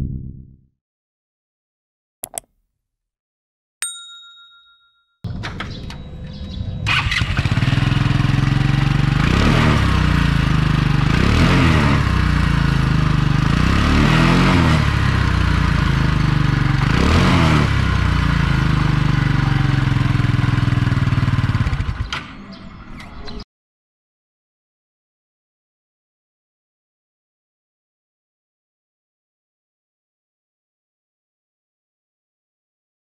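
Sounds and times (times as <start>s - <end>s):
scooter engine idling and revving: 5.3s - 22.6s.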